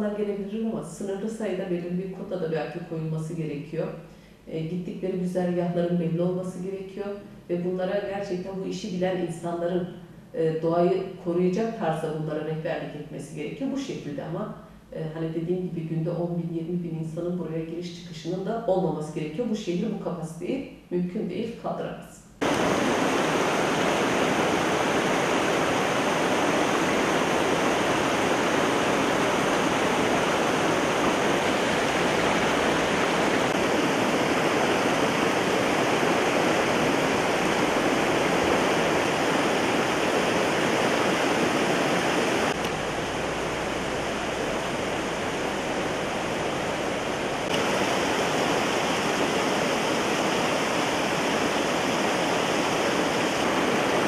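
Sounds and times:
river rapids rushing: 22.4 - 54.0.

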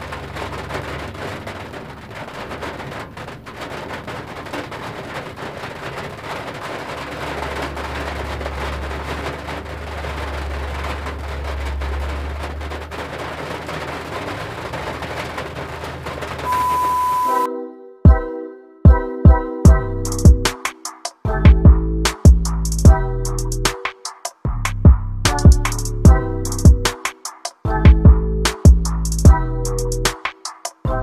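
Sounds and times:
rain pattering on vehicle roof: 0.0 - 17.0, 19.7 - 31.0
truck engine rumbling: 0.0 - 17.5, 19.7 - 27.1, 27.7 - 31.0.

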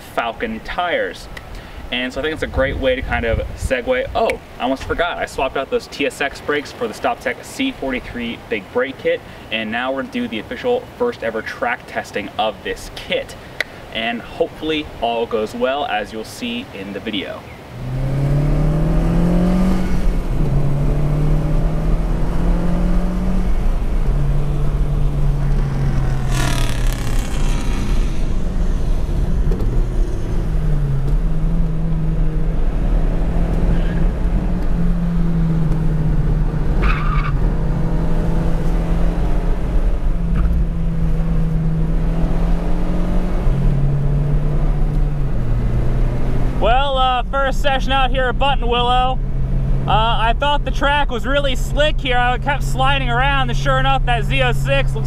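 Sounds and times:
car engine revving: 17.6 - 55.0
tires squealing: 17.8 - 32.2, 33.2 - 34.6, 36.5 - 39.0.

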